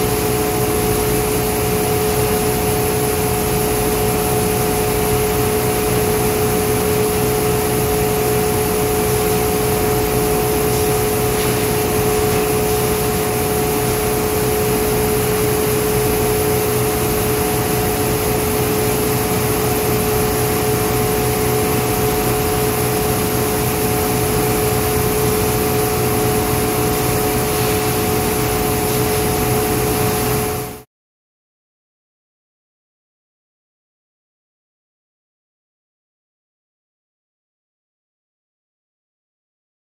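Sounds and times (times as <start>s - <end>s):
machinery drone: 7.8s - 18.5s, 24.5s - 30.6s.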